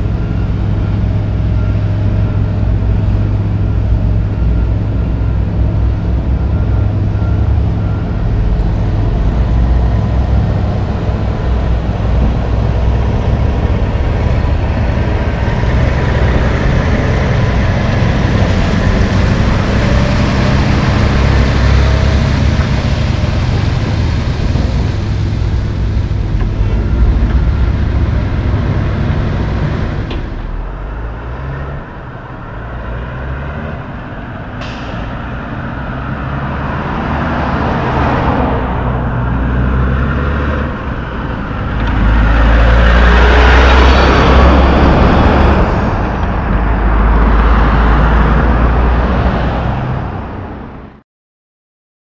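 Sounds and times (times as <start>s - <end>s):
cars and trucks passing: 0.0s - 51.0s
truck engine driving on gravel: 5.0s - 31.5s.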